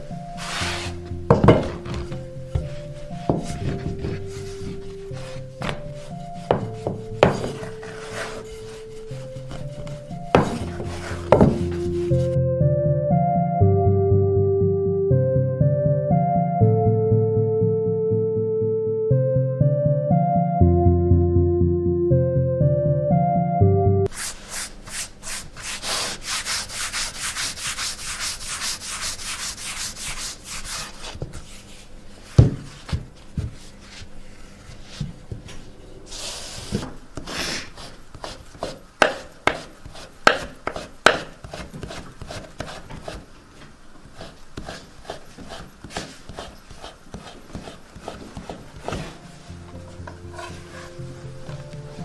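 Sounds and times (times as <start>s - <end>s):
rolling pin rolling dough: 0.0s - 12.4s, 24.1s - 52.0s
thump on wooden board: 1.3s - 2.7s, 11.3s - 11.7s, 32.4s - 32.7s
knife tapping on board: 40.3s - 41.3s.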